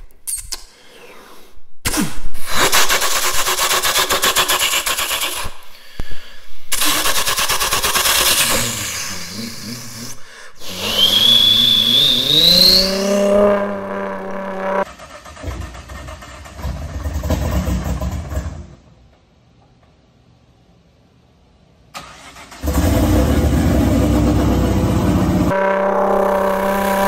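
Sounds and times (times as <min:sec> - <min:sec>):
man imitating car engine: 0:07.9 - 0:14.8, 0:24.7 - 0:27.0.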